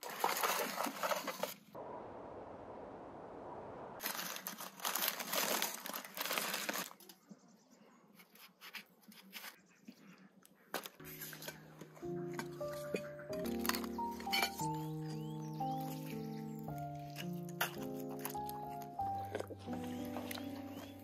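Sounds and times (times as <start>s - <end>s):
aluminium foil crinkling: 0.0s - 1.7s, 4.0s - 7.2s, 12.7s - 21.0s
music with held notes: 11.0s - 21.0s.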